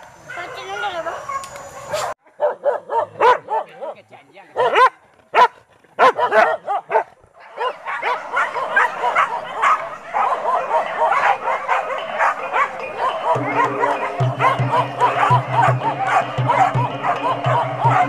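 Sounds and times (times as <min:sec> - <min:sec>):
dogs barking and yelping: 0:00.2 - 0:18.0.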